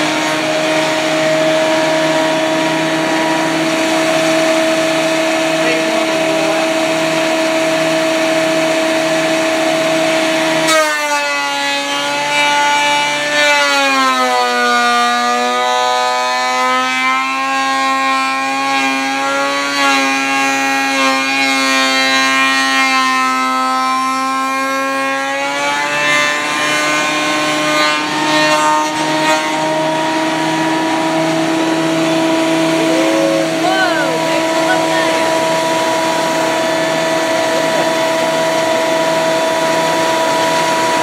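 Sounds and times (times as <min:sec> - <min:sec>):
thickness planer whining: 0:00.0 - 0:41.0.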